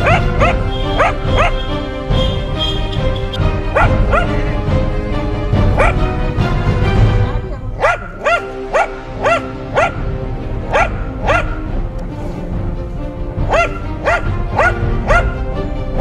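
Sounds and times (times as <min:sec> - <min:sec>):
dog barking high-pitched: 0:00.0 - 0:01.7, 0:03.7 - 0:04.4, 0:05.8 - 0:06.0, 0:07.8 - 0:10.0, 0:10.7 - 0:11.7, 0:13.5 - 0:15.4
background music: 0:00.0 - 0:16.0.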